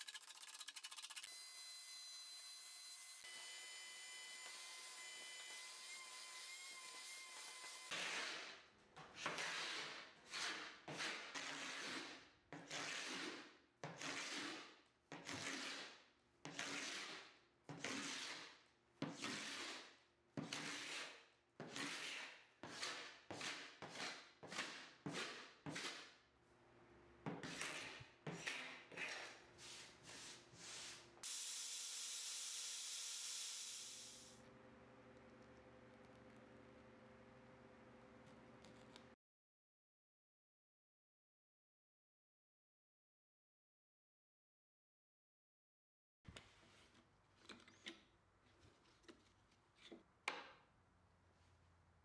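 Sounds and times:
paint scraper scraping wood: 0.0s - 1.3s, 7.9s - 26.1s.

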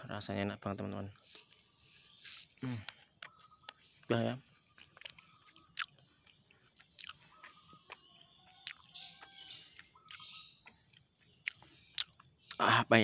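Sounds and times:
crisp crunches of chewing: 1.1s - 12.6s.

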